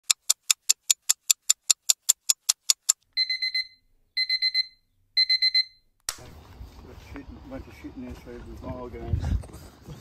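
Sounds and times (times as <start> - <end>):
rapid even ticking: 0.0 - 3.0
electronic alarm beeping: 3.2 - 5.9.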